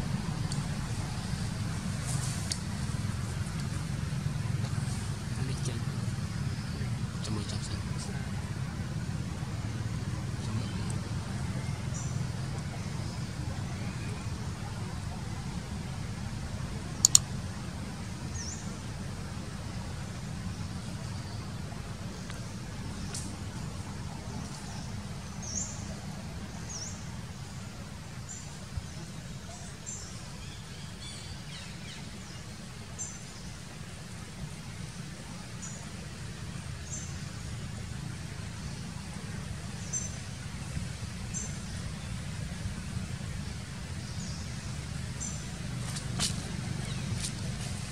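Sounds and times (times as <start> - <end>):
low outdoor rumble: 0.0 - 47.9
sharp clicks: 17.0 - 17.3.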